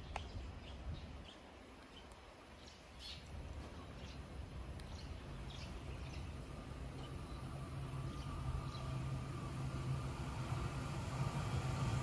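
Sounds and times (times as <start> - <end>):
low steady rumble: 3.4 - 12.0.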